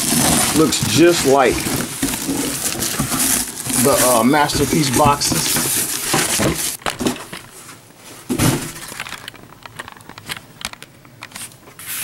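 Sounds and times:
cardboard scraping: 0.0 - 9.1
plastic bag rustling: 0.0 - 12.0.

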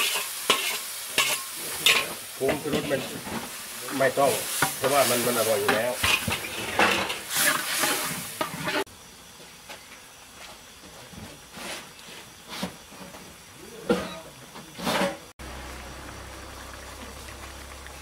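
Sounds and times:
metal spoon scraping a wok: 0.0 - 3.0, 5.7 - 8.9
paste sizzling and bubbling: 0.0 - 9.4.

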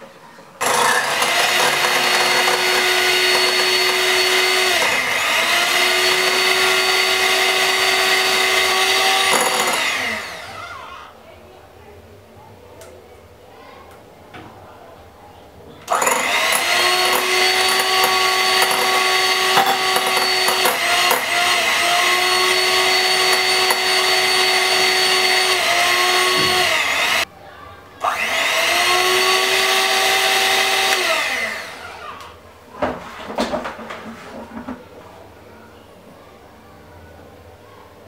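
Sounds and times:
electric hand mixer whining: 0.6 - 11.1, 15.9 - 27.3, 28.0 - 32.3.

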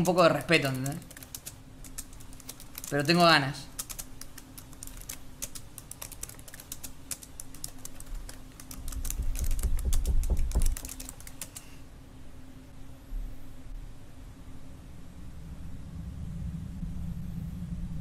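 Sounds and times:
rapid typing on keyboard: 0.0 - 11.7
steady low hum: 0.0 - 18.0
low rumble: 14.7 - 18.0.

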